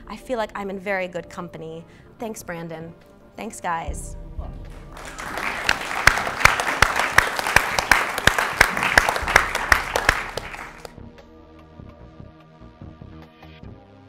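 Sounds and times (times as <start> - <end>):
soft background music: 0.0 - 14.0
crowd applauding: 4.8 - 11.0.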